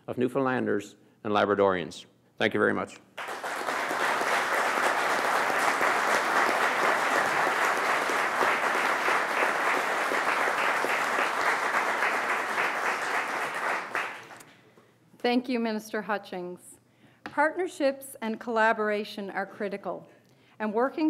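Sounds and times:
audience applauding: 0:03.2 - 0:14.5.

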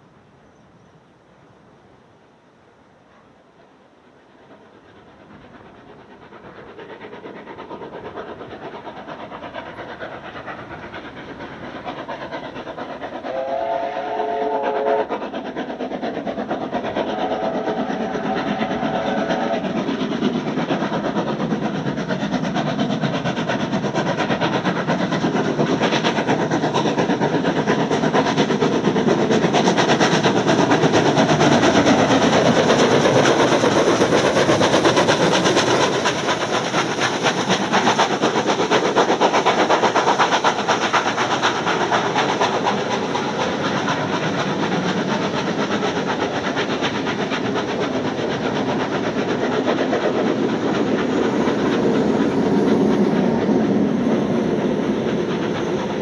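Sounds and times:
steam locomotive exhaust beats: 0:03.0 - 0:56.0
steam whistle blowing: 0:13.3 - 0:15.1.

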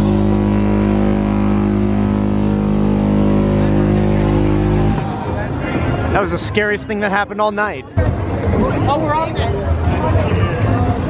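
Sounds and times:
deep horn blasting: 0:00.0 - 0:06.8.

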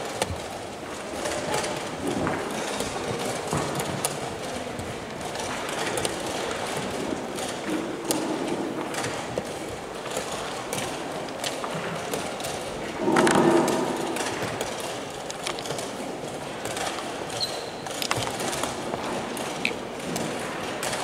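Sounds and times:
background noise: 0:00.0 - 0:21.0
chess pieces clacking on wooden board: 0:14.6 - 0:15.9.

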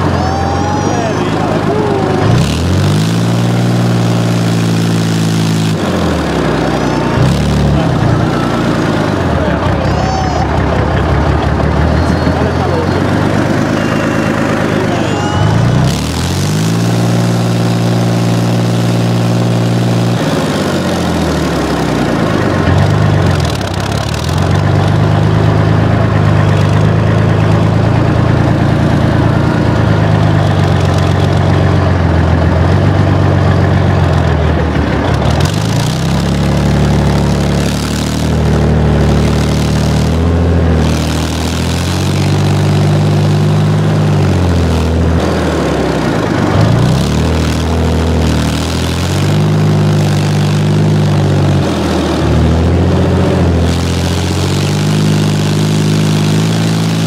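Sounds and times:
armoured vehicle engine running: 0:00.0 - 0:57.0.

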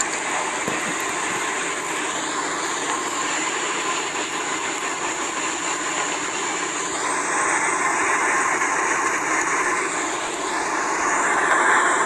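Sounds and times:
boat engine noise: 0:00.0 - 0:12.0
rush of boat wake: 0:00.0 - 0:12.0.

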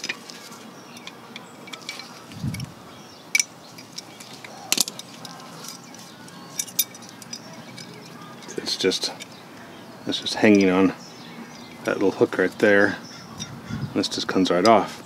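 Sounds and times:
metallic clicks of brake spring: 0:00.9 - 0:09.4.

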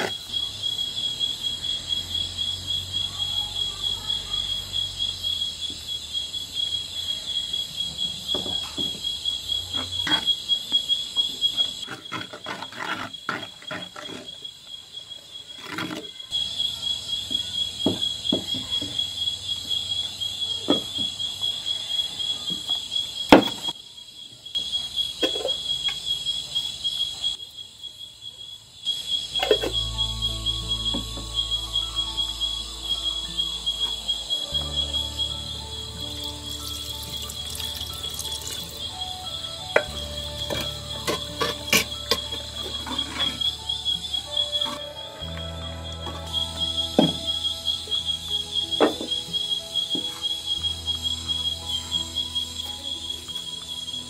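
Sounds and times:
insect chirring: 0:00.0 - 0:54.0
metal spoon scraping clay pots: 0:11.8 - 0:14.5, 0:29.4 - 0:29.9, 0:39.7 - 0:43.8.

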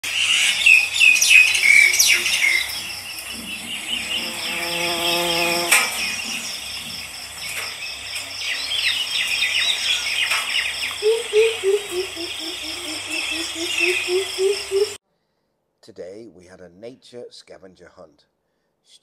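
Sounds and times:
high insect trill: 0:00.1 - 0:15.0.

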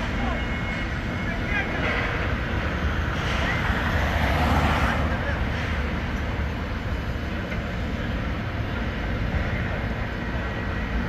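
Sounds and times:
low engine rumble: 0:00.0 - 0:11.0
street traffic: 0:00.0 - 0:11.0.

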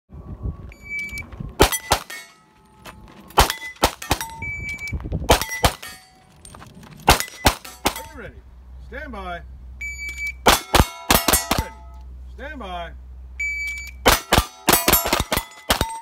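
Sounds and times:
pistol shots: 0:01.6 - 0:02.3, 0:03.4 - 0:04.4, 0:05.3 - 0:06.0, 0:10.4 - 0:11.8, 0:14.0 - 0:16.0
steel plate targets ringing: 0:01.6 - 0:04.6, 0:05.3 - 0:06.5, 0:07.1 - 0:08.3, 0:10.1 - 0:12.0, 0:13.6 - 0:16.0
shot timer beep: 0:13.4 - 0:14.0.

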